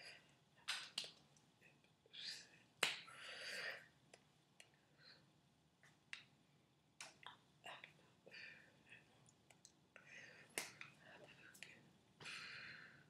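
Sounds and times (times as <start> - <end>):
hand slapping hand: 0.7 - 1.2, 2.8 - 3.1.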